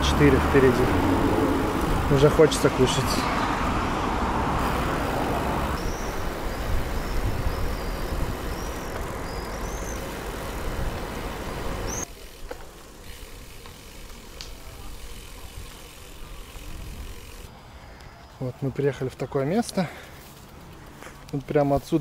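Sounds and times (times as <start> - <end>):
bicycle tyres rolling on asphalt: 0.0 - 22.0
wind on microphone: 5.3 - 8.9.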